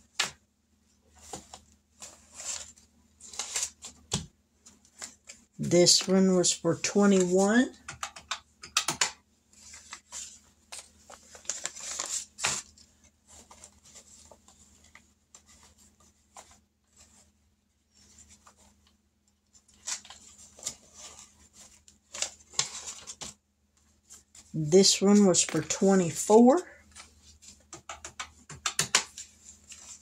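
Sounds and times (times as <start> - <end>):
paper bills rustling: 1.2 - 7.8, 9.5 - 17.2, 28.9 - 30.0.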